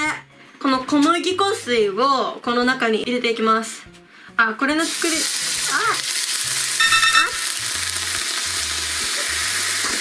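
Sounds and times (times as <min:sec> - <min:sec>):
batter sizzling on a hotplate: 0:04.8 - 0:10.0
brief high-pitched note: 0:06.8 - 0:07.6.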